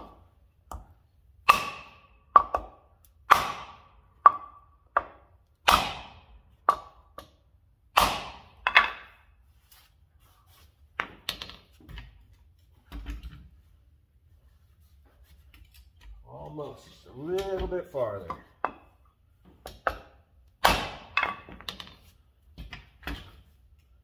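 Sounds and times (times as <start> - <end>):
hammer striking wood block: 0.0 - 9.2, 18.3 - 19.0, 19.6 - 21.9.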